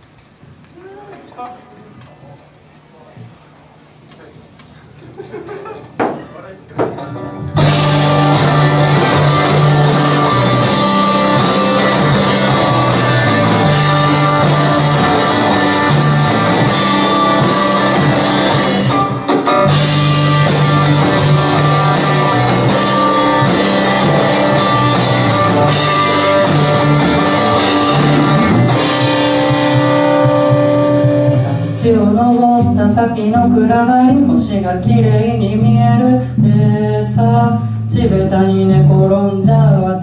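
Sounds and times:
live rock band playing: 7.0s - 36.8s.

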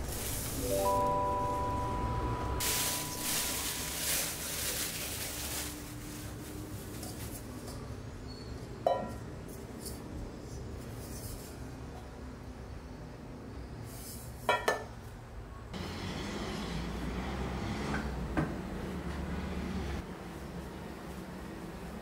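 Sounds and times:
plastic bag rustling: 0.0s - 2.0s, 2.6s - 7.6s.

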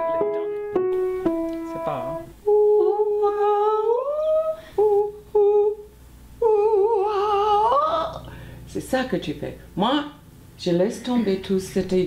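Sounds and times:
piano notes: 0.0s - 4.1s
woman humming: 2.1s - 8.3s.

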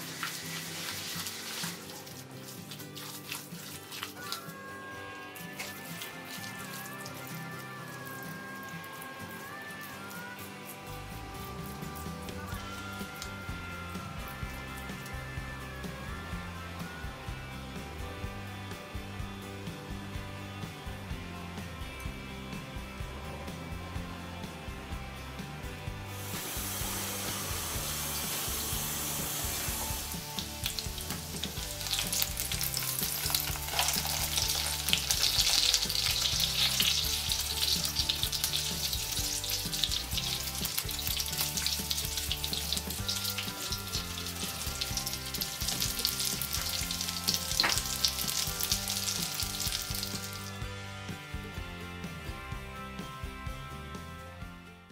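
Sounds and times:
chicken frying in oil: 0.0s - 17.2s, 26.1s - 50.7s.

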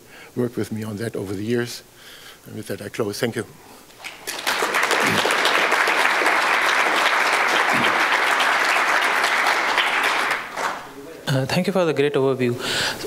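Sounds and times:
audience applauding: 4.0s - 10.9s.

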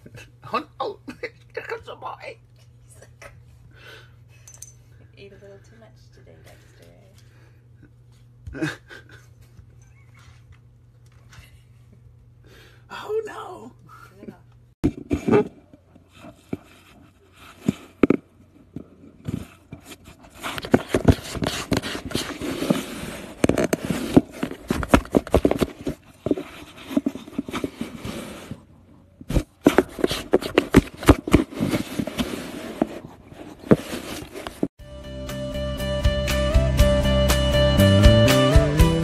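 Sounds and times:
cats scratching cardboard box: 19.3s - 34.7s.

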